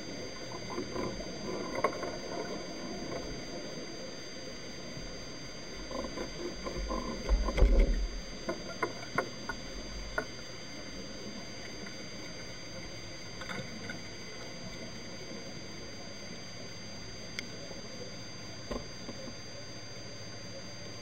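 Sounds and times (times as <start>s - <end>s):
sharp clicks and knocks underwater: 0.3s - 3.7s, 5.0s - 15.0s, 18.6s - 19.5s.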